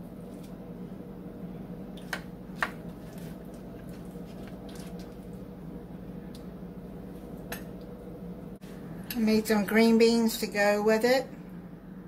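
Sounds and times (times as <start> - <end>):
steady low hum: 0.0 - 12.0
spoon squishing and scraping food: 1.9 - 5.4.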